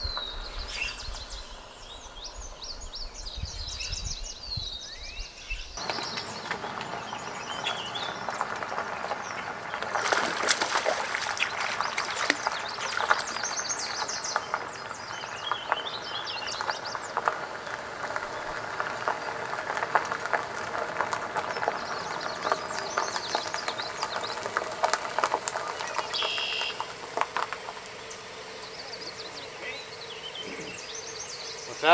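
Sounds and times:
songbirds chirping: 0.0 - 31.9
rustling hiss with clicks: 5.8 - 30.0.

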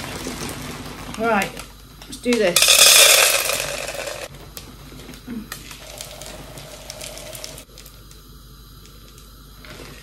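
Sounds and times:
wax pellets trickling into metal: 5.5 - 8.2.

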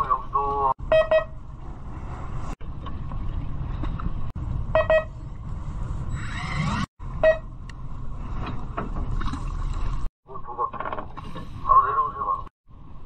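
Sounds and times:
boat engine rumble: 0.0 - 6.1, 7.0 - 13.0
short electronic beeps: 0.9 - 1.4, 4.8 - 5.1.

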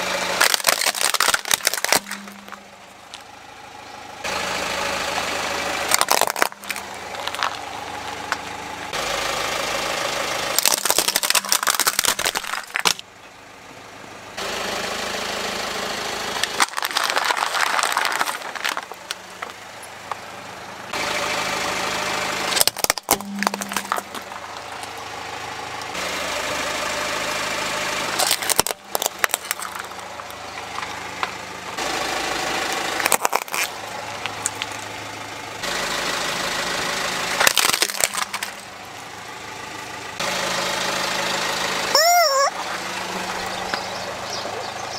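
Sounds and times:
car engine idling: 0.0 - 44.9
plastic toys crunching under tyre: 0.2 - 2.6, 5.8 - 8.4, 10.5 - 13.0, 16.4 - 19.6, 22.5 - 24.9, 28.2 - 31.3, 32.7 - 34.8, 37.4 - 38.7.

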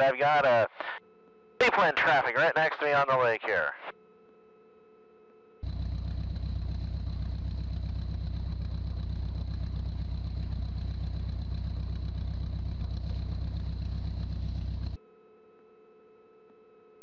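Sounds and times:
seaplane engine running: 5.6 - 15.0.

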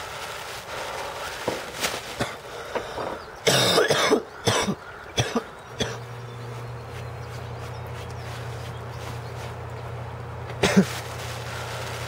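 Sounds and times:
steady low hum: 0.0 - 12.0
man coughing: 2.2 - 2.4, 3.4 - 6.0, 10.6 - 11.0.

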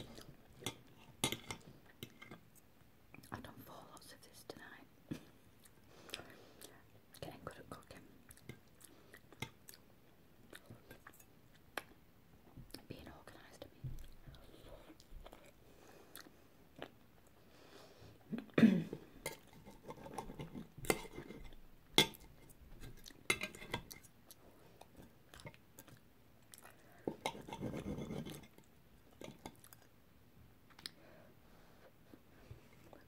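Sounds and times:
chewing: 5.6 - 9.9, 10.5 - 12.0, 14.0 - 17.4, 19.2 - 30.0
cutlery scraping a plate: 19.2 - 22.2, 23.3 - 23.9, 27.2 - 28.6.

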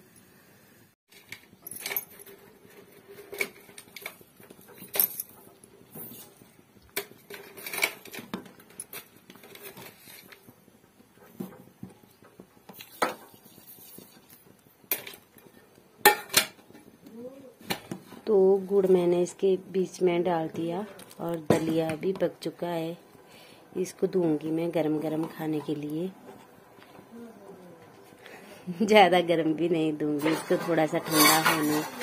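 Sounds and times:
ladle scraping metal pan: 30.2 - 32.0.

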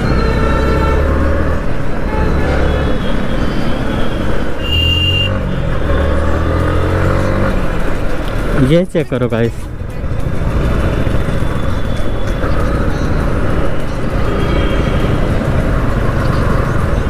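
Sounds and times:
road and traffic noise: 0.0 - 17.0.

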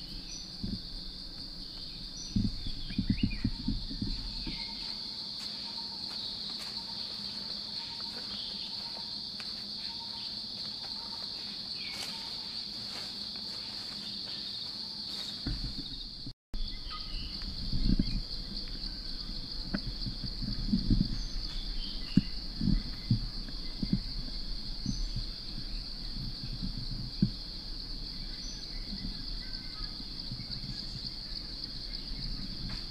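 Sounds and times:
low thuds: 0.0 - 4.8, 15.4 - 16.3
high-pitched insect chorus: 0.0 - 32.9.

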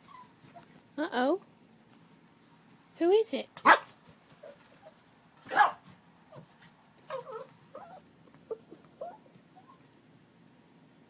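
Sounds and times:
dog whining and yipping: 0.0 - 0.7, 7.1 - 9.9
dog barking: 3.6 - 3.9, 5.5 - 5.9.

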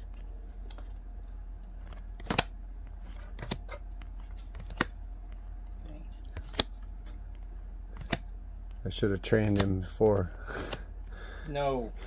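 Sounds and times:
steady low hum: 0.0 - 12.0
cards snapping: 1.8 - 2.5, 3.3 - 5.0, 6.2 - 10.9.

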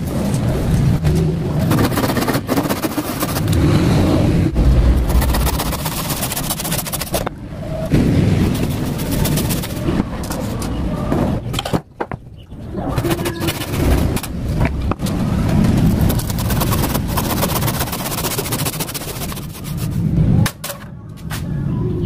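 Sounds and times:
hand saw cutting wood: 1.6 - 3.5, 5.4 - 7.2, 16.0 - 19.9.

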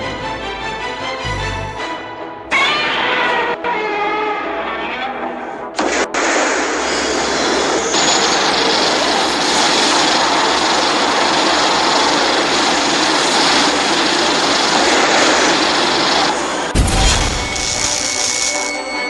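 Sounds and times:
continuous rush of noise: 6.8 - 18.7.

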